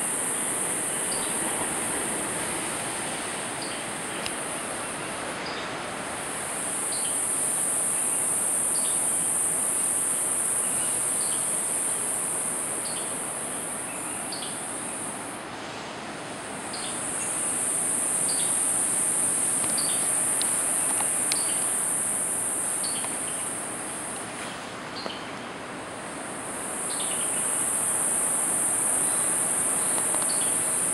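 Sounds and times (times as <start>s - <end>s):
high-pitched insect drone: 26.5s - 30.9s.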